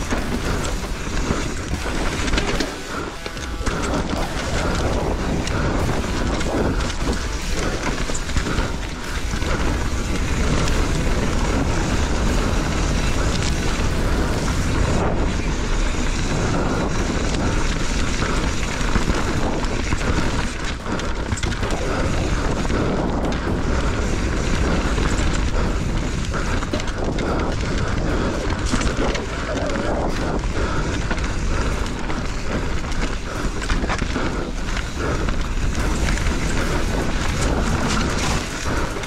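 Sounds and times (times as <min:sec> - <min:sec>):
bike clattering over rocks: 0:00.0 - 0:39.0
wind on microphone: 0:00.0 - 0:39.0.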